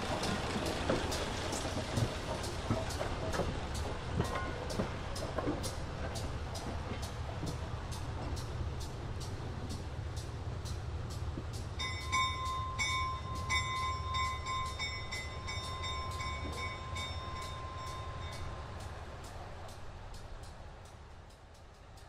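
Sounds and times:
diesel locomotives rumbling: 0:00.0 - 0:22.0
regular ticking: 0:00.0 - 0:22.0
locomotive bell ringing: 0:02.3 - 0:05.7, 0:11.6 - 0:19.0.

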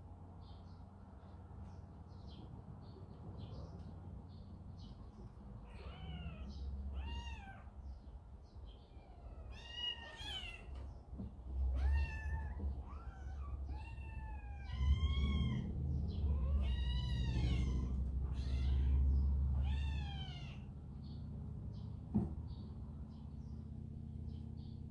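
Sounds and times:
kittens meowing: 0:05.6 - 0:08.0, 0:08.8 - 0:11.0, 0:11.6 - 0:20.7.

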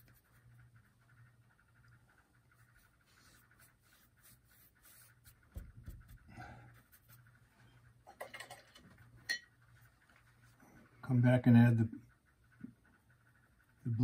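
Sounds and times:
paintbrush scratchy strokes: 0:00.0 - 0:07.8.

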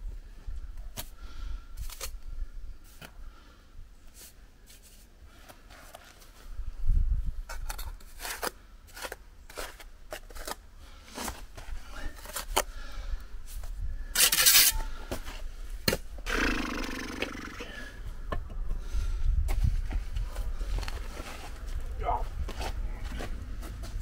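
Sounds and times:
trowel scraping concrete blocks: 0:07.5 - 0:10.6, 0:14.2 - 0:14.9.

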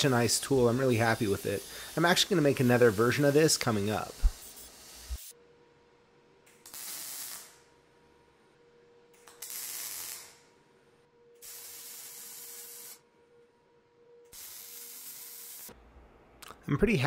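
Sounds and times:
welding hissing: 0:00.0 - 0:05.4, 0:06.6 - 0:07.7, 0:09.2 - 0:10.5, 0:11.4 - 0:13.0, 0:14.3 - 0:15.8.

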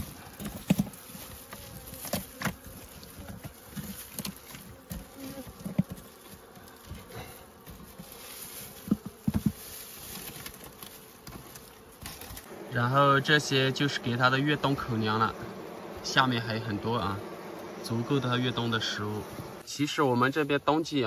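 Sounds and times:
honeybees buzzing: 0:00.0 - 0:21.0
scraper knocking and scraping comb: 0:00.4 - 0:12.4.

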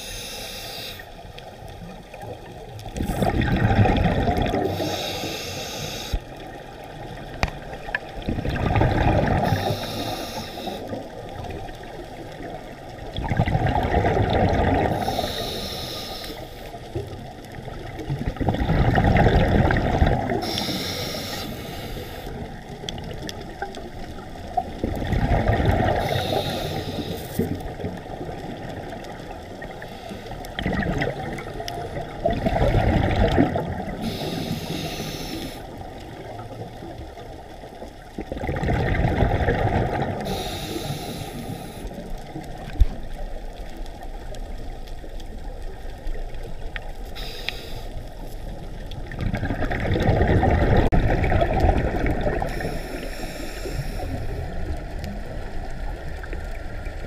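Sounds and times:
regulator inhale hiss: 0:00.0 - 0:01.2, 0:04.6 - 0:06.4, 0:09.4 - 0:11.1, 0:14.9 - 0:17.0, 0:20.3 - 0:22.5, 0:25.9 - 0:27.5, 0:29.8 - 0:30.5, 0:33.9 - 0:35.8, 0:40.2 - 0:42.1, 0:47.0 - 0:48.6, 0:52.5 - 0:55.1
exhaled bubbles rushing: 0:02.9 - 0:04.9, 0:07.0 - 0:09.7, 0:10.8 - 0:15.2, 0:17.6 - 0:20.6, 0:22.4 - 0:26.3, 0:30.5 - 0:34.2, 0:38.1 - 0:40.4, 0:48.6 - 0:52.8.

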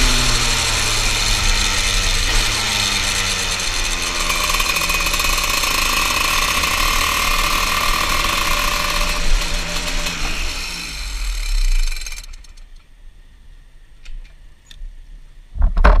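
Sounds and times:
kart engine running at low revs: 0:00.0 - 0:12.7.

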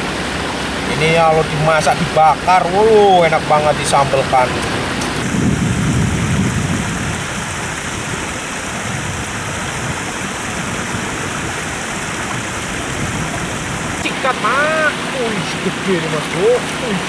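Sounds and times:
water rushing over a weir: 0:00.0 - 0:17.0.

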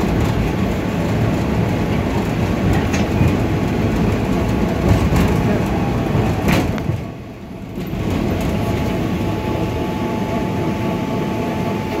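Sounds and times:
tram rumbling on rails: 0:00.0 - 0:12.0
faint high whine: 0:08.8 - 0:12.0.

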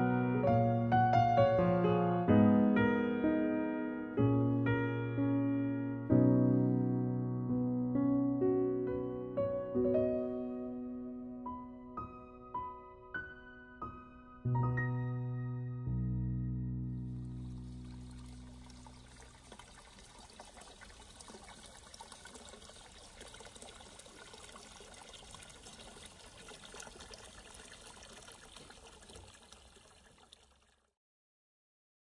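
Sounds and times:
water splashing into stone basin: 0:17.1 - 0:31.0.

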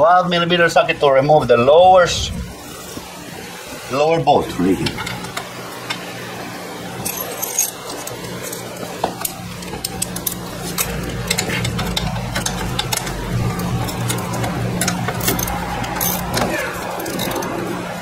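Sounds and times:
steady low hum: 0:00.0 - 0:18.0
ratchet and tools clicking: 0:07.0 - 0:17.5.

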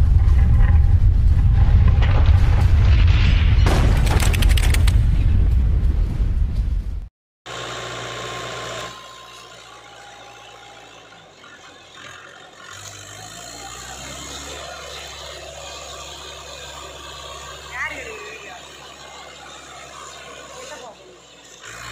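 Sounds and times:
tractor diesel engine straining: 0:07.5 - 0:21.9.

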